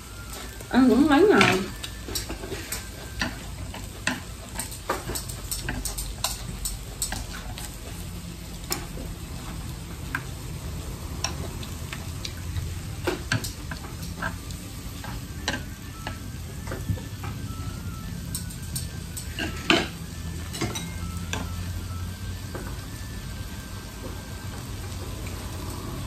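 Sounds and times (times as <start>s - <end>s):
meat rolls sizzling on grill: 0.0s - 26.0s
chopsticks clicking on plate: 1.4s - 7.8s, 11.2s - 12.4s, 13.0s - 17.4s, 18.3s - 21.6s.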